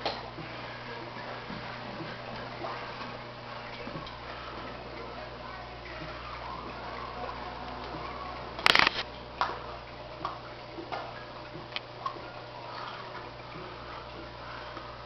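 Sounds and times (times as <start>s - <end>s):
aquarium equipment hum: 0.0s - 15.0s
sharp clicks: 8.6s - 9.0s.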